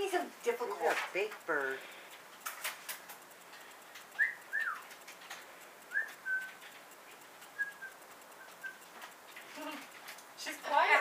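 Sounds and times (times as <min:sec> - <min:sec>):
short whistled notes: 0:04.2 - 0:04.8, 0:05.9 - 0:06.6.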